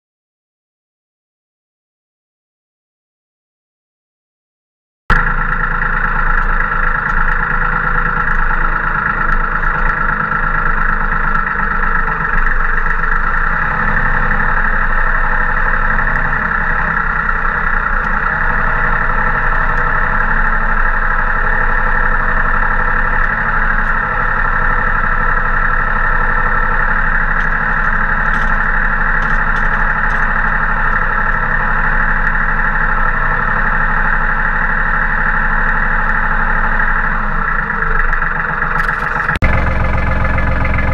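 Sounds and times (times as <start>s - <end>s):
tractor diesel engine running: 5.1s - 40.9s.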